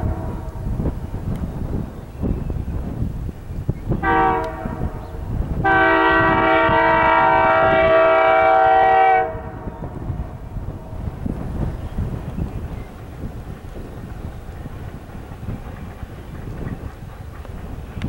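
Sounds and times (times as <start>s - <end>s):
locomotive air horn blasts: 0.0s - 0.8s, 4.0s - 5.0s, 5.6s - 9.7s
wind buffeting microphone: 0.0s - 18.0s.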